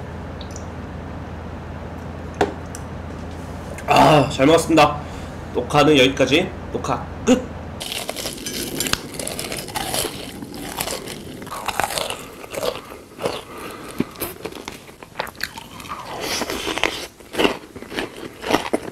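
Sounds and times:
person crunching food: 7.8s - 18.9s.

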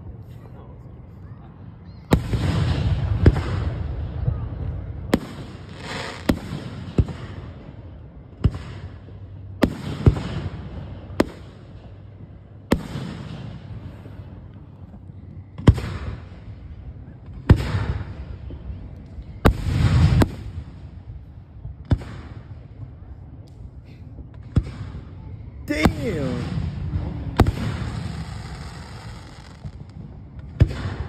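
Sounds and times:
firework crackle: 5.2s - 7.4s, 25.7s - 31.0s.

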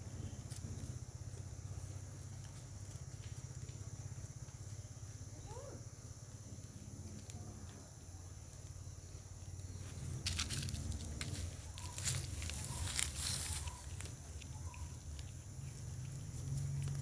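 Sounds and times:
dry leaves rustling and crackling: 9.8s - 17.0s.

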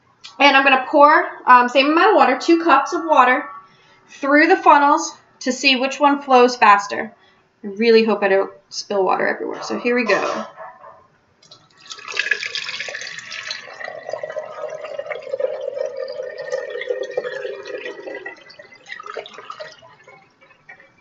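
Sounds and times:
water splashing through funnels: 11.5s - 21.0s.

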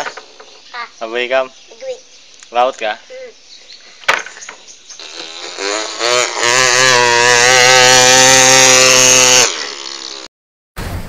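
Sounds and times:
child imitating a chainsaw: 5.0s - 10.3s.

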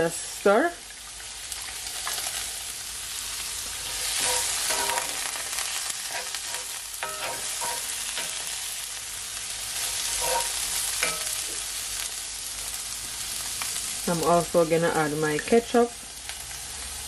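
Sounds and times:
vegetables sizzling in oil: 0.0s - 17.0s
wooden spoon knocking and scraping pan: 3.8s - 5.2s, 6.1s - 8.6s, 9.9s - 11.6s.

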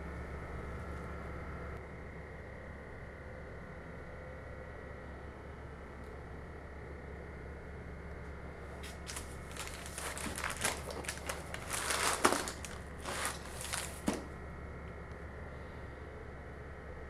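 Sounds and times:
baking paper crinkling: 8.8s - 14.3s.

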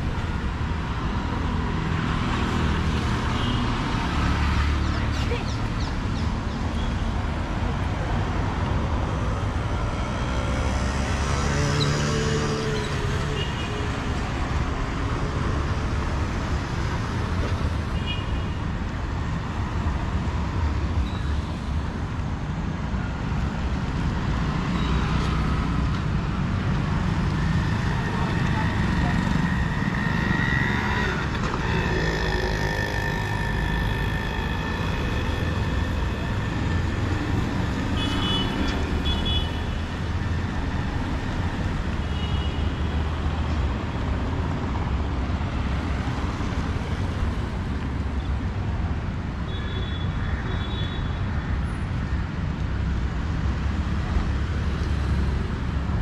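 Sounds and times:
traffic rumble: 0.0s - 56.0s
vehicle horns: 38.0s - 39.6s.

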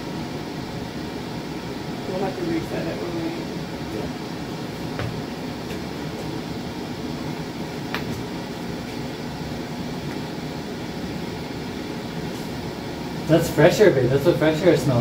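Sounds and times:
ventilator fans humming: 0.0s - 15.0s.

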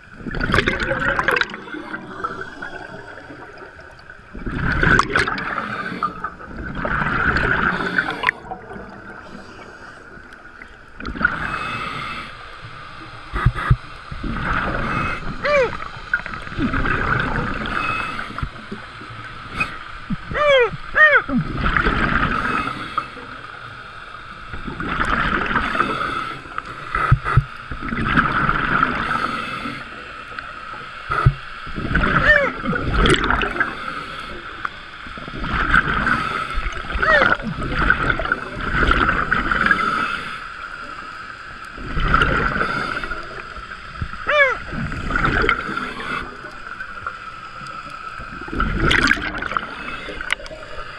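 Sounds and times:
diver exhaling bubbles: 0.2s - 9.3s, 31.1s - 33.8s, 48.4s - 50.8s.

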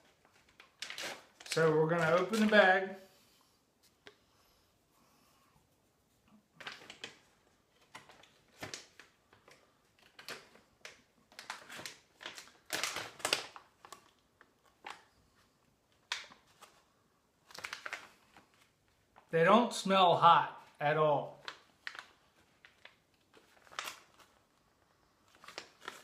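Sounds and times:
plastic bag crinkling: 0.0s - 2.9s, 6.6s - 15.2s, 17.4s - 19.3s, 21.4s - 26.0s.

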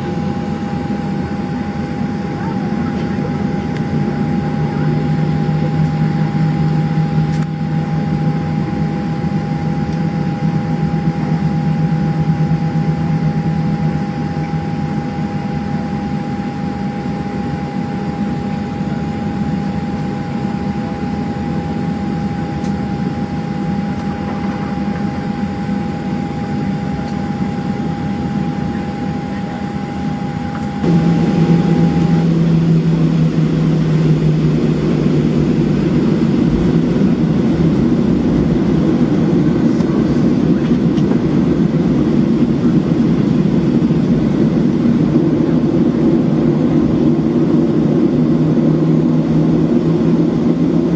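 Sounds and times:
airplane cabin hum: 0.0s - 50.9s
high held tone: 30.8s - 33.4s.

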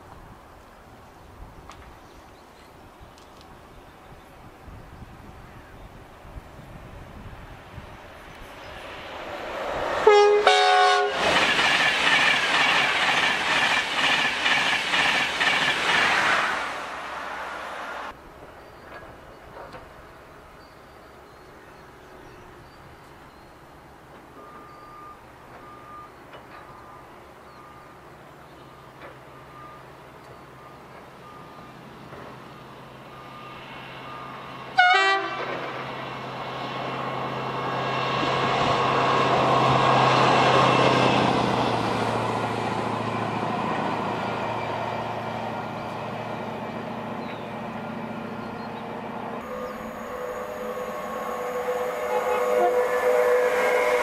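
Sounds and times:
short sharp horn toot: 10.0s - 11.2s, 49.4s - 54.0s.

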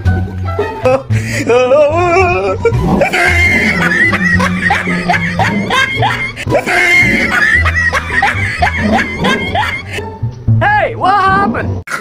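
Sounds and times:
comedic background music: 0.0s - 12.0s
snickering laughter: 2.6s - 10.0s.

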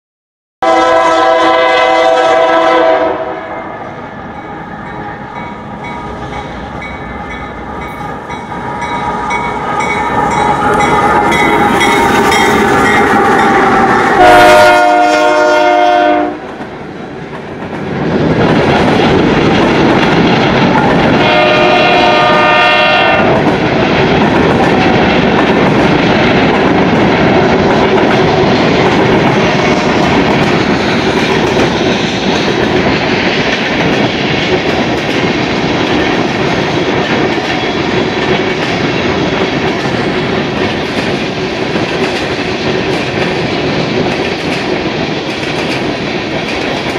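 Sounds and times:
locomotive horn blast: 0.6s - 3.8s, 13.4s - 16.5s, 21.1s - 23.4s
freight cars rumbling and clattering: 16.5s - 22.2s.

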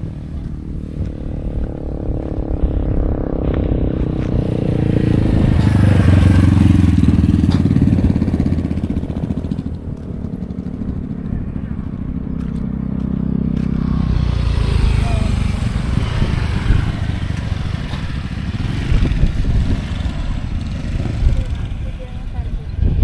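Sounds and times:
motorcycle engine passing by: 0.0s - 23.0s.

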